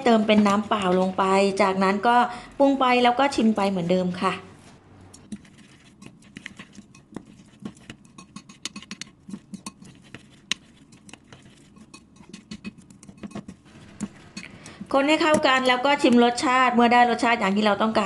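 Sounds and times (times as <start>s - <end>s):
spoon scraping ceramic bowl: 4.6s - 16.3s.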